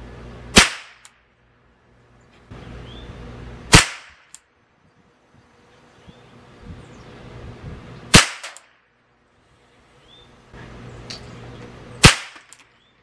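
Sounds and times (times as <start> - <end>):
rifle shots: 0.5 - 1.1, 3.7 - 4.3, 8.1 - 8.7, 12.0 - 12.6.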